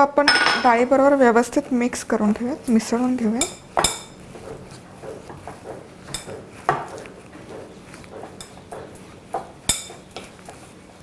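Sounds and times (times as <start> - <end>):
spatula scraping and squelching: 2.2 - 11.0
spatula tapping glass bowl: 3.4 - 4.2.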